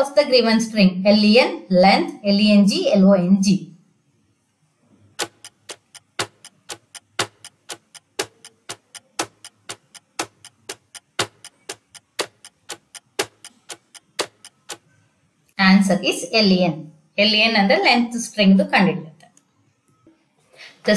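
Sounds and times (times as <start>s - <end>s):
countdown timer ticking: 5.2s - 14.9s.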